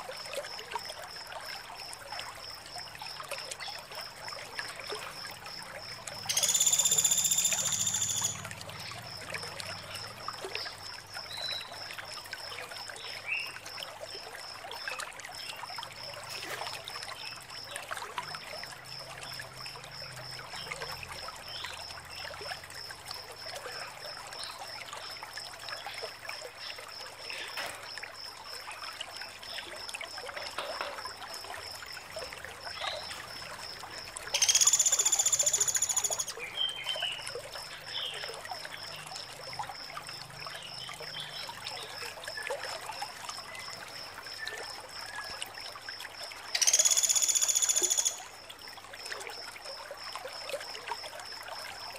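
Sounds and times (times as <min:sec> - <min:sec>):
harsh buzzing bird call: 0:06.3 - 0:08.4.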